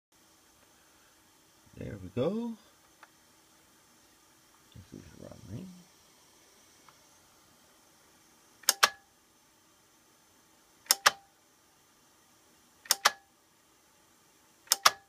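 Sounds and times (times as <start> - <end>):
faint hum of tape deck: 0.2 - 15.0
tape deck mechanism double clicks: 8.6 - 9.0, 10.8 - 11.3, 12.8 - 13.3, 14.6 - 15.0.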